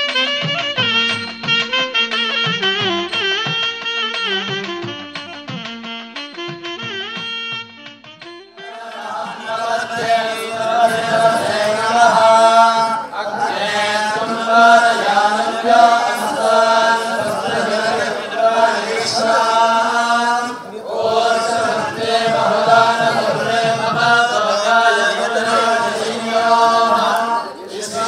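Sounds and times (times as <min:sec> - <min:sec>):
mantras being chanted: 0:08.6 - 0:28.0.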